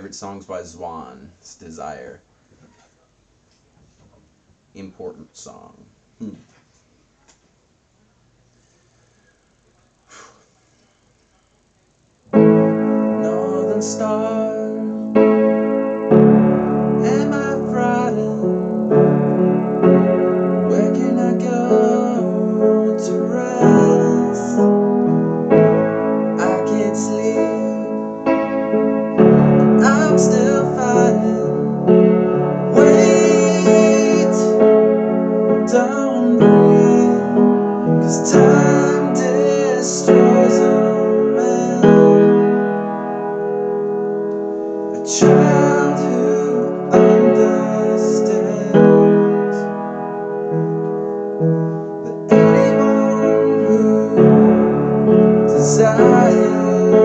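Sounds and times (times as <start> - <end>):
piano chords: 12.3 - 57.0.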